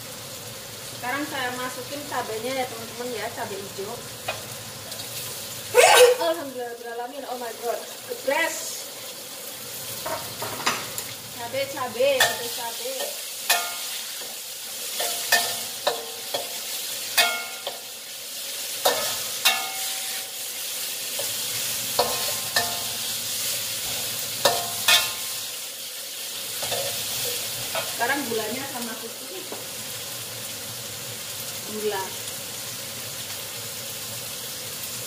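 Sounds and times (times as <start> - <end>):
spice paste sizzling in hot oil: 0.0 - 35.0
spatula clinking and scraping pan: 12.0 - 18.0, 18.8 - 20.5, 21.1 - 23.2, 23.8 - 25.6, 26.6 - 28.2.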